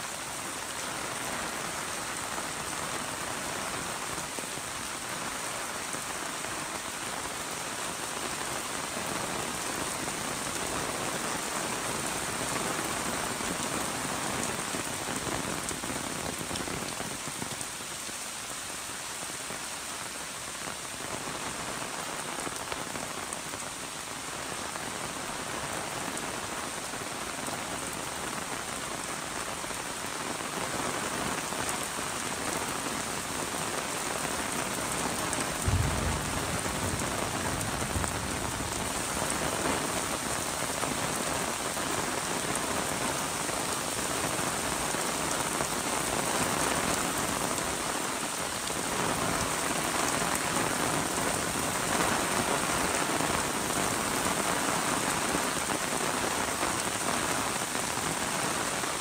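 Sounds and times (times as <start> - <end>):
rain pattering on umbrella: 0.0 - 59.0
low thump: 35.6 - 37.1.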